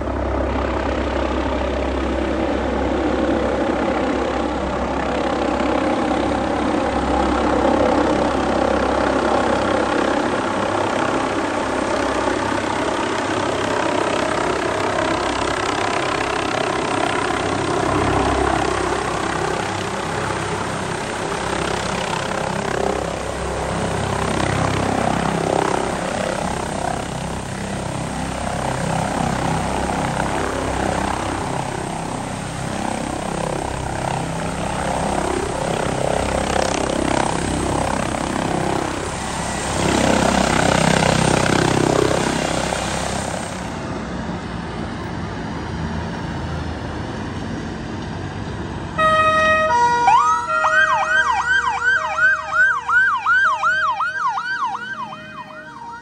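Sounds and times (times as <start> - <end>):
helicopter rotor and engines: 0.0 - 56.0
fire engine sirens: 48.9 - 56.0.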